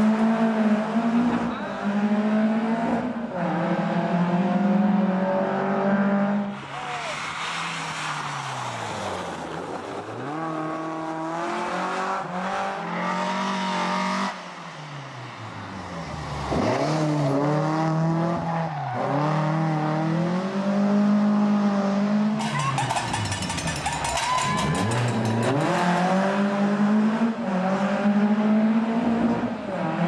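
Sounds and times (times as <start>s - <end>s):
rally car engine revving hard: 0.0s - 6.5s, 10.2s - 14.4s, 16.4s - 22.4s, 24.8s - 30.0s.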